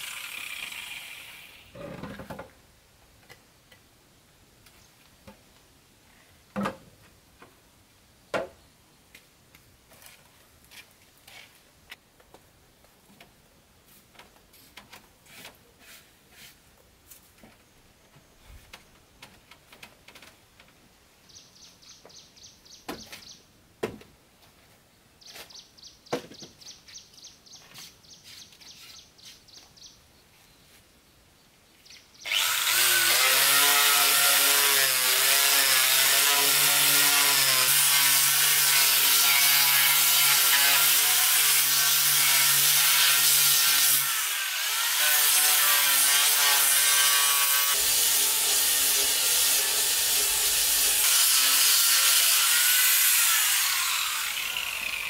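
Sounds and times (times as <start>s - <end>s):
electric sander on wood: 0.0s - 1.7s, 32.3s - 55.0s.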